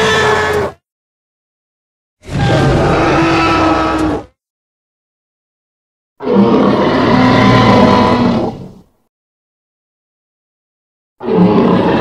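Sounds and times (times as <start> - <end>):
deep growling roar: 2.2 - 4.3, 6.2 - 8.8, 11.2 - 12.0.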